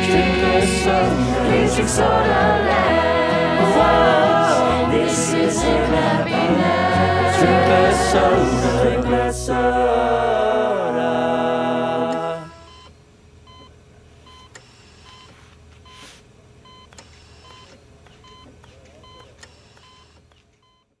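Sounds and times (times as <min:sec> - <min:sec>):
choir singing held chord: 0:00.0 - 0:12.7
short electronic beeps: 0:15.1 - 0:16.1, 0:16.7 - 0:20.9.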